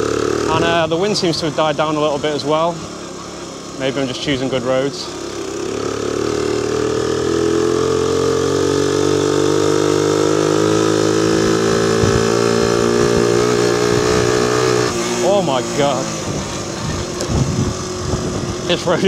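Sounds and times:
moped engine running: 0:00.0 - 0:19.0
low thumps: 0:11.3 - 0:18.7.

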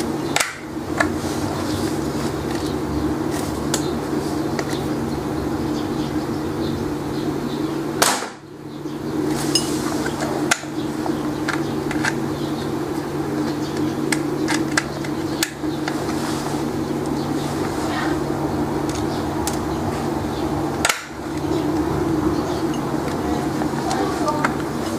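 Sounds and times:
steady low hum: 0:00.0 - 0:24.9
marble gun firing crack: 0:00.4 - 0:00.7, 0:08.0 - 0:08.4, 0:20.8 - 0:21.2.

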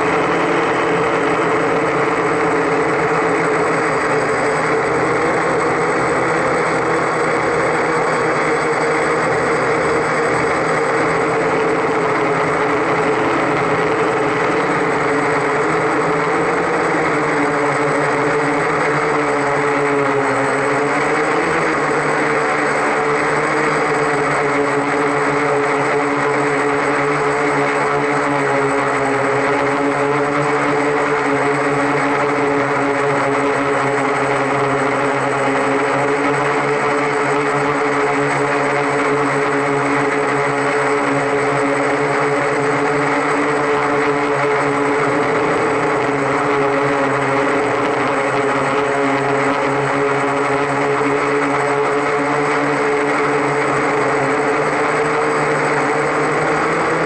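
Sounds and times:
drone motors buzzing: 0:00.0 - 0:57.0.

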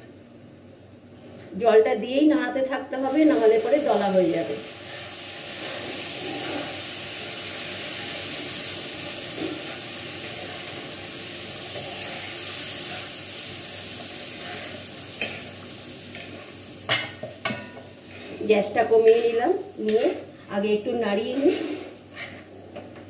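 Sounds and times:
food sizzling in a pan: 0:02.9 - 0:23.0
spatula scraping a pan: 0:04.8 - 0:07.0, 0:11.6 - 0:13.2, 0:14.0 - 0:18.5, 0:21.3 - 0:22.5.

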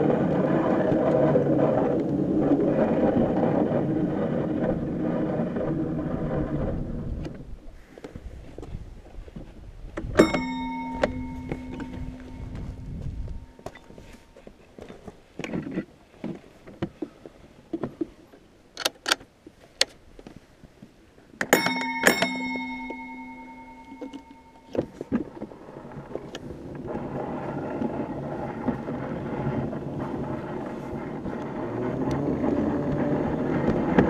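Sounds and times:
rolling rumble: 0:00.0 - 0:18.4, 0:21.5 - 0:34.0
sharp metallic clangs: 0:10.2 - 0:13.7, 0:21.5 - 0:25.1.

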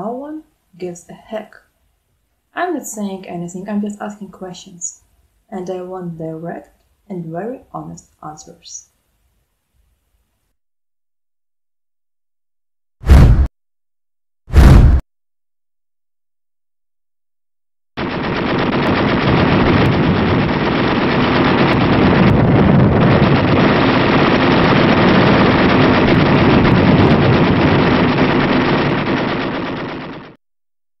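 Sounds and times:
rapid machine-gun fire: 0:18.0 - 0:30.4.

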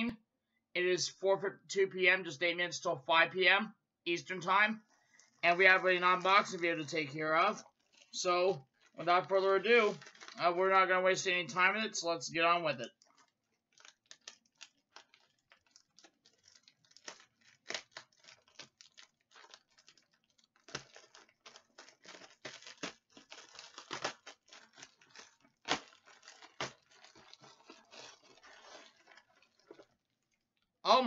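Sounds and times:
packaging tearing and crinkling: 0:05.2 - 0:09.0, 0:09.8 - 0:10.4, 0:12.8 - 0:30.0.

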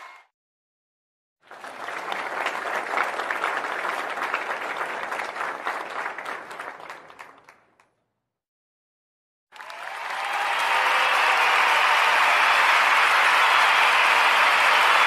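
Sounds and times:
crowd applauding: 0:01.4 - 0:07.9, 0:09.5 - 0:15.0.

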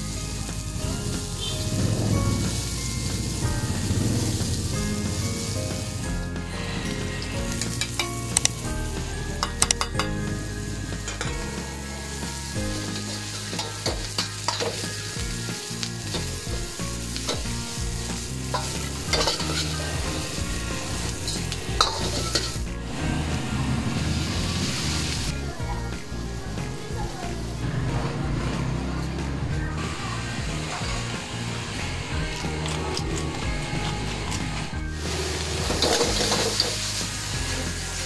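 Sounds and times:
vegetables sizzling in hot oil: 0:00.0 - 0:27.9, 0:33.6 - 0:38.0.

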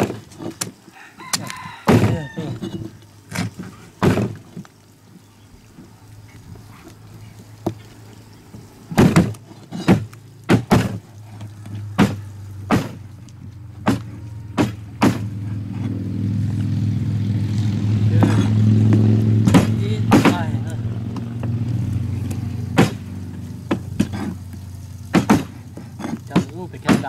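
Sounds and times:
low motor hum: 0:02.0 - 0:26.9
sharp knocks and clacks: 0:13.8 - 0:15.3, 0:18.2 - 0:21.6, 0:22.7 - 0:23.0, 0:25.1 - 0:27.0.

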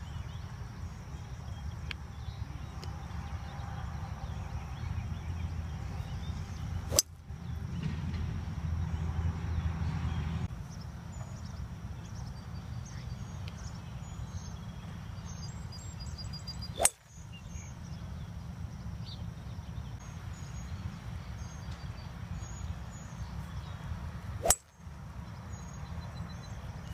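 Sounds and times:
low background noise: 0:00.0 - 0:26.9
golf club striking ball: 0:06.9 - 0:07.2, 0:16.8 - 0:17.2, 0:24.4 - 0:24.8.

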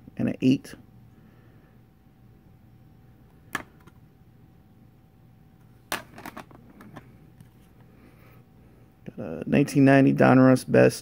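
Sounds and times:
plastic cases knocking together: 0:05.9 - 0:07.0.

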